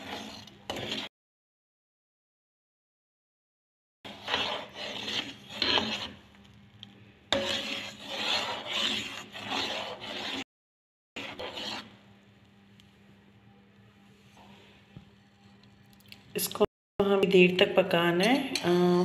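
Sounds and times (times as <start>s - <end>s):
spoon scraping a pan: 0.0s - 1.1s, 4.1s - 6.2s, 7.3s - 10.4s, 11.2s - 11.9s.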